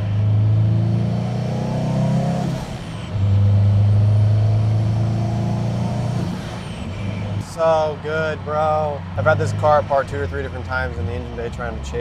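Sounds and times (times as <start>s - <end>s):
car engine accelerating: 0.0s - 11.8s.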